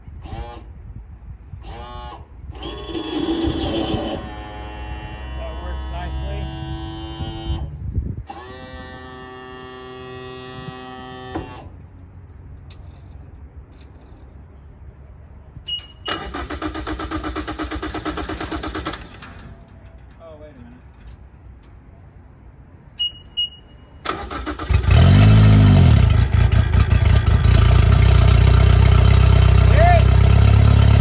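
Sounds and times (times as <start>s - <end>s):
electric starter cranking: 2.6s - 4.4s, 16.1s - 19.2s, 24.1s - 26.5s
short beep: 15.7s - 16.2s, 22.9s - 24.0s.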